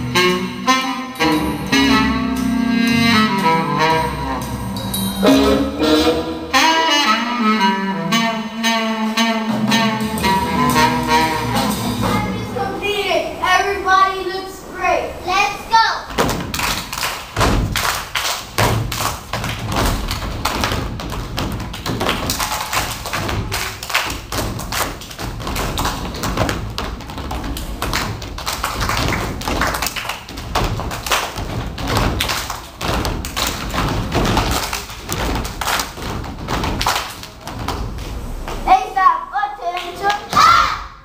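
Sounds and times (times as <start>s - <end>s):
feet stomping on wooden stage: 16.1s - 38.0s.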